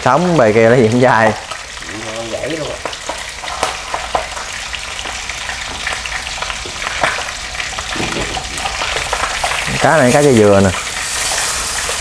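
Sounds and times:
fish deep-frying in oil: 0.0 - 12.0.

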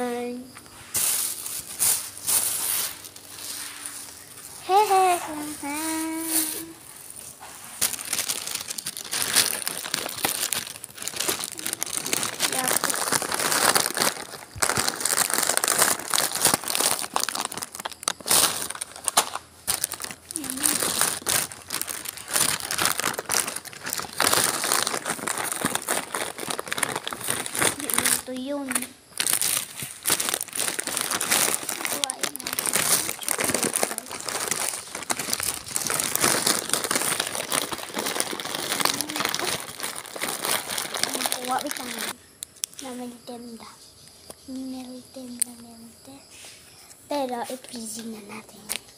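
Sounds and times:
crinkling and crackling clicks: 0.5 - 42.9, 47.2 - 48.9.

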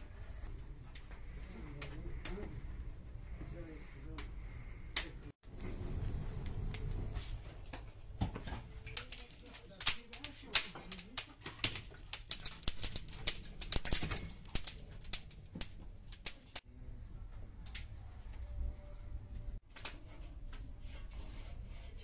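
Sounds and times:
branches burning and crackling: 4.0 - 16.7
sharp pops of fire: 4.9 - 16.6.

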